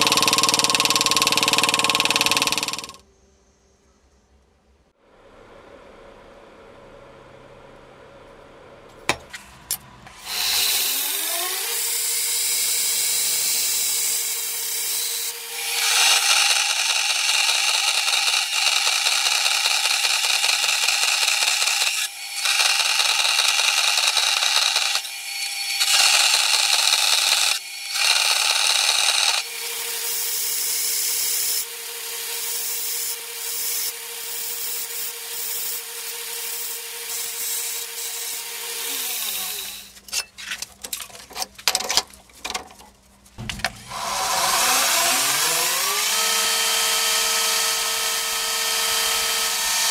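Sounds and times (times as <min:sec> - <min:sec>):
bandsaw rasping through steel: 0:00.0 - 0:03.0, 0:10.1 - 0:40.3, 0:43.8 - 0:49.9
belt grinder grinding steel: 0:00.0 - 0:03.0, 0:10.1 - 0:40.3, 0:43.8 - 0:49.9
belt grinder motor whining: 0:00.0 - 0:03.0, 0:10.1 - 0:40.0, 0:43.8 - 0:49.9.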